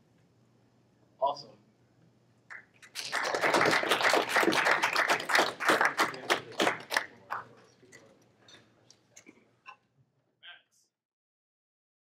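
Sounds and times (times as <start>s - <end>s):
audience clapping: 2.5s - 7.6s.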